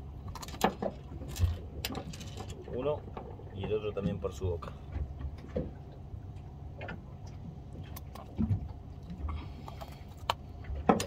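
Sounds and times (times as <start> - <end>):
steady low hum: 0.0 - 11.0
fishing line clicks and rustles: 0.2 - 3.4.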